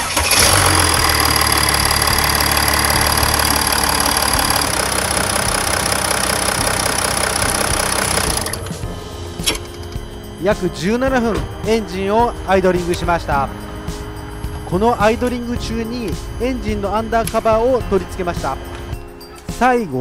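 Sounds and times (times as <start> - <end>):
diesel engine idling: 0.0 - 9.0, 9.8 - 19.1.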